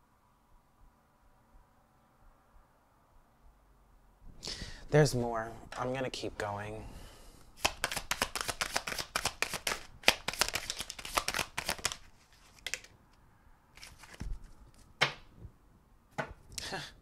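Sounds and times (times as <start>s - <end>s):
cards shuffling: 7.6s - 13.2s, 13.8s - 15.2s
cards tapped on table: 15.0s - 15.2s.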